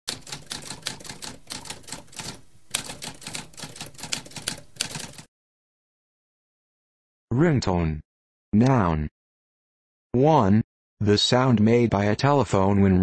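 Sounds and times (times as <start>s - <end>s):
typewriter keys clacking: 0.1s - 5.3s.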